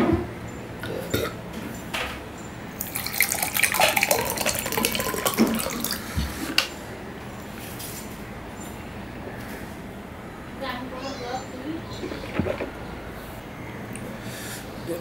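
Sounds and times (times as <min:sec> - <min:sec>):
water pouring into glass: 0:02.8 - 0:06.2.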